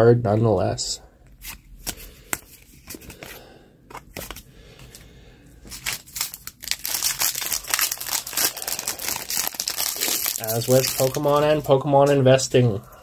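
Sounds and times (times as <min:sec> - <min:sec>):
foil pack crinkling and tearing: 0:05.7 - 0:11.8.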